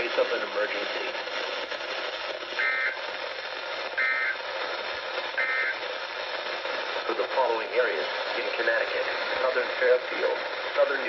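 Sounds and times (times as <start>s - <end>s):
radio static: 0.0s - 11.0s
digital data tones: 2.6s - 3.0s, 4.0s - 4.4s, 5.4s - 5.8s.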